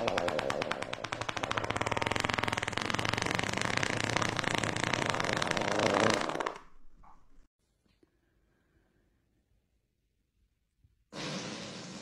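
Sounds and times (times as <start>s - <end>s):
woman farting: 0.0s - 6.8s.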